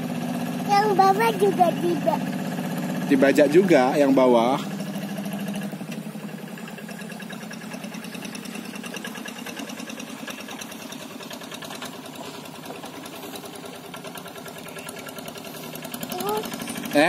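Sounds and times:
hand tractor engine chugging: 0.0s - 17.0s.

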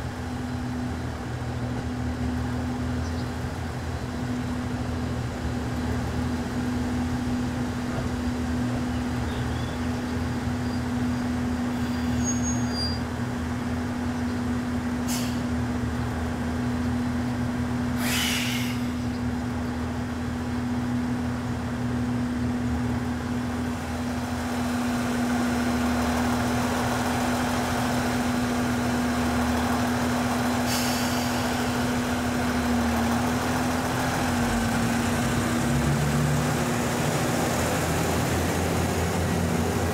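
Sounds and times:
train engine hum: 0.0s - 39.9s
air hissing: 18.0s - 19.1s.

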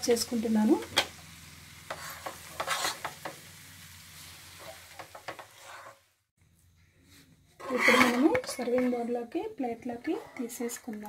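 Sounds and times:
faint sizzle: 0.0s - 11.0s
spoon scraping a frying pan: 1.8s - 3.4s, 4.5s - 6.1s, 7.6s - 11.0s.

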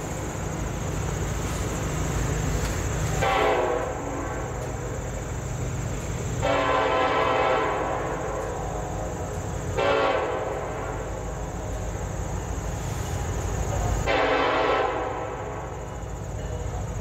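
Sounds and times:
low train rumble: 0.0s - 17.0s
locomotive horn blasts: 3.2s - 4.6s, 6.4s - 8.3s, 9.8s - 11.0s, 14.1s - 15.6s.

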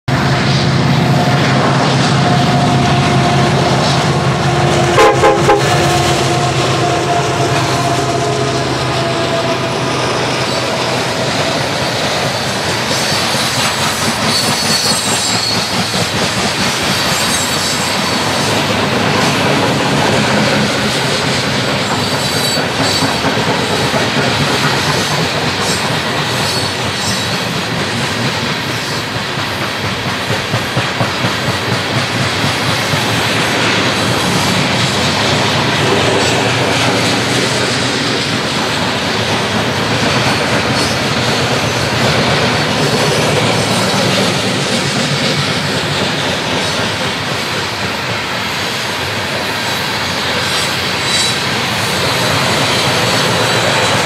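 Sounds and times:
diesel locomotive engines: 0.0s - 54.0s
train wheels clattering on rails: 0.1s - 54.0s
high-pitched wheel squeal: 12.9s - 16.0s, 50.4s - 52.0s.

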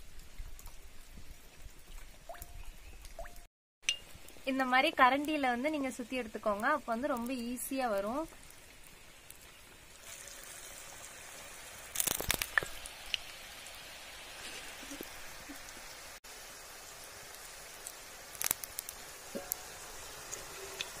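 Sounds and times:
oil sizzling: 3.8s - 21.0s.

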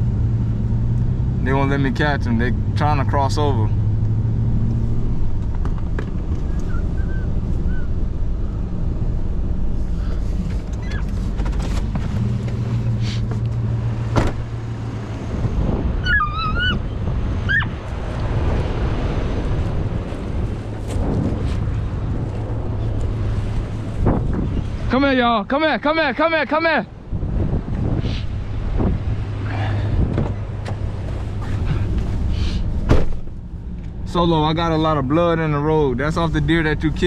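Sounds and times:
truck engine humming: 0.0s - 37.0s
wind noise on microphone: 14.2s - 24.9s, 26.9s - 33.4s
wavering high-pitched cry: 16.0s - 17.8s.

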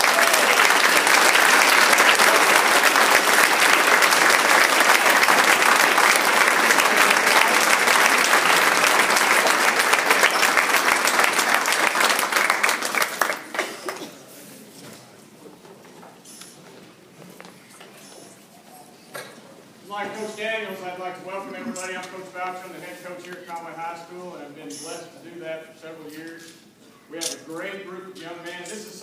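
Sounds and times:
audience applauding: 0.0s - 14.1s.

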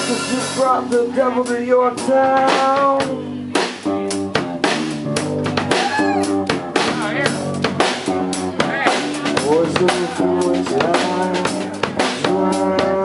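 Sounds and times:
acoustic-electric guitar: 0.0s - 13.0s
electric bass: 0.0s - 13.0s
drum kit hits: 2.1s - 13.0s.

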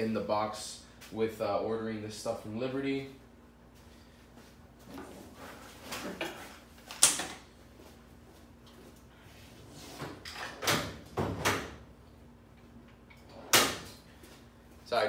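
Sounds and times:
drawers sliding open and shut: 9.5s - 11.8s, 13.2s - 14.0s.

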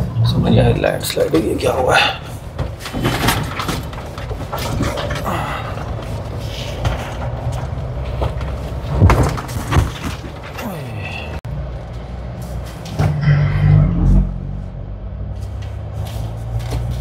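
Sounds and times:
engine and tyre rumble: 0.0s - 17.0s
car jolting thumps: 2.3s - 11.2s.

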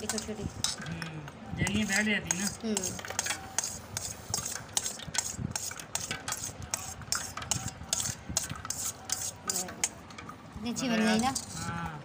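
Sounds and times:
knife tapping metal bowl: 1.7s - 5.0s.

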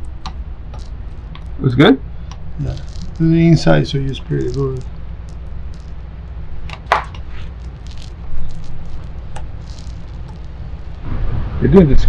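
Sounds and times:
steady low hum: 0.0s - 12.0s
paint roller sticky swishes: 2.6s - 4.9s, 6.7s - 11.1s.

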